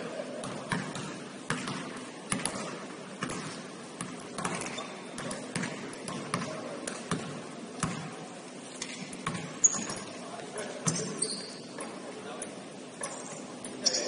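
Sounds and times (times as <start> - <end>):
basketball bouncing on court: 0.4 - 8.2, 8.8 - 10.1.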